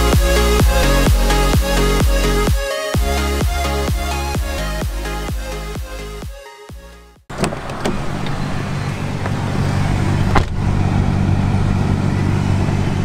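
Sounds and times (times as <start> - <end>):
car engine idling: 0.0 - 6.2, 7.3 - 13.0
car door slamming: 7.3 - 9.4, 10.1 - 10.8.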